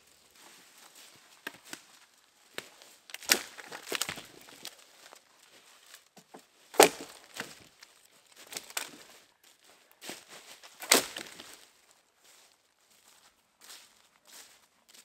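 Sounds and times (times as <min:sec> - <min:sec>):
light crackling and crunching: 0:00.0 - 0:15.0
wood cracking: 0:01.3 - 0:09.3, 0:10.6 - 0:11.7.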